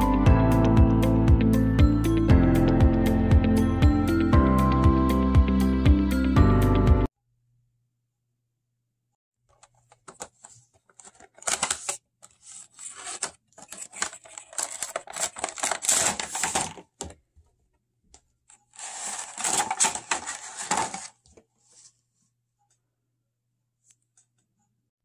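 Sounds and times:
plastic rustling and crinkling: 9.5 - 17.2, 18.6 - 22.0
cardboard flap opening: 10.0 - 17.1, 18.8 - 21.2.

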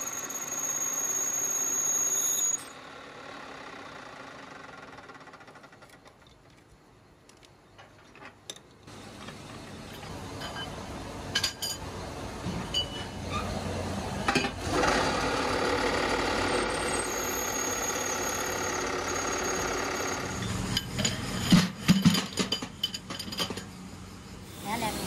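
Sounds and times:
workshop machine whining: 0.0 - 2.8, 8.9 - 25.0.

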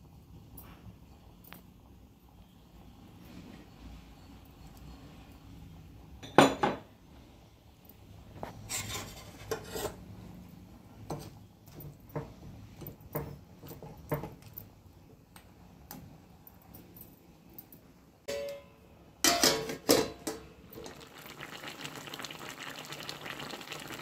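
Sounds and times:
metal ladle clinking and scraping pan: 8.5 - 10.1, 18.3 - 20.5.

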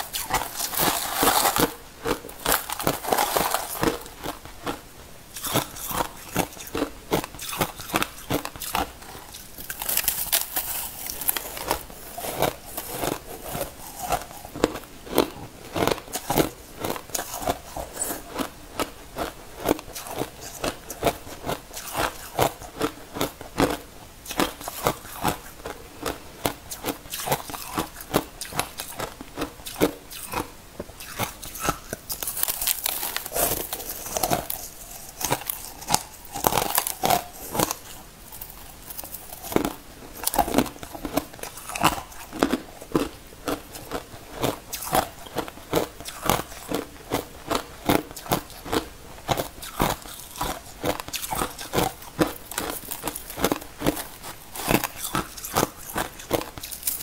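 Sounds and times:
crushed ice crunching: 0.1 - 1.7, 2.4 - 4.4, 9.7 - 14.4.

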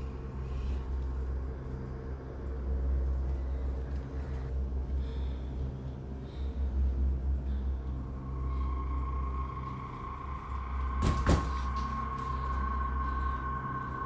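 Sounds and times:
low steady drone: 0.0 - 14.0
high ringing tones: 8.4 - 14.0.

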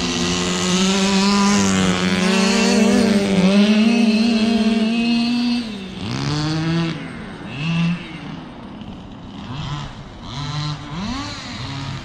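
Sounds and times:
small two-stroke engine revving: 0.0 - 12.0.

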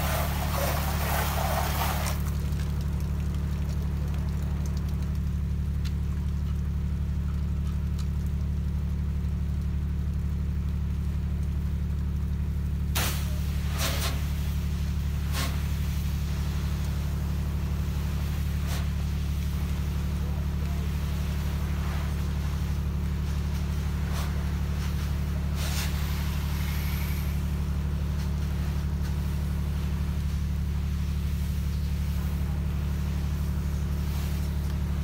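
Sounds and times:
bursts of spray: 0.0 - 5.7, 12.7 - 35.0.

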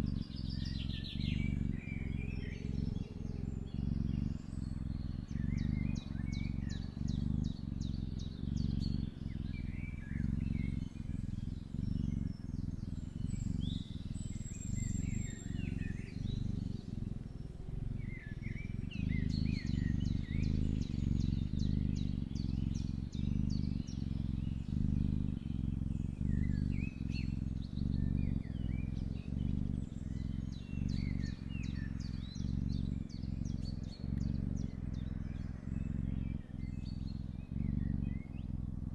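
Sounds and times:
birds chirping: 0.0 - 38.9
kitten purring: 0.0 - 38.9.

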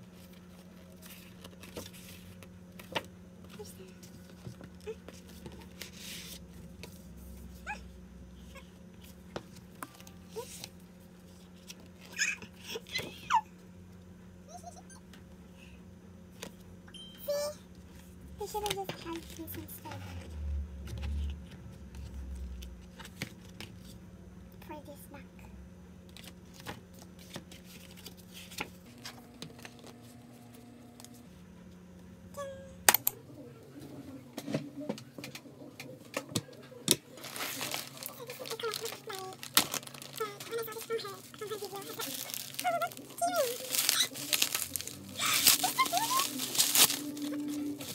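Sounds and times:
faint steady hum: 0.0 - 47.9
pages tapping and rustling: 0.2 - 7.0, 36.3 - 47.9.

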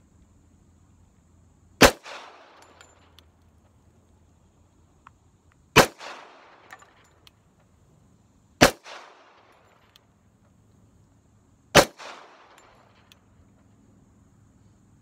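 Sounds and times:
pistol shots with echo: 1.8 - 2.8, 5.8 - 6.7, 8.6 - 9.5, 11.8 - 12.8
faint small clicks: 2.6 - 4.3, 4.9 - 5.7, 6.7 - 7.8, 9.5 - 10.9, 12.5 - 13.8.

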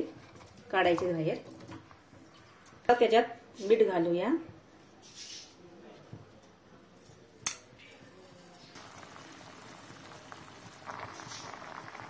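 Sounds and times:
water boiling in a pot: 8.1 - 12.0.

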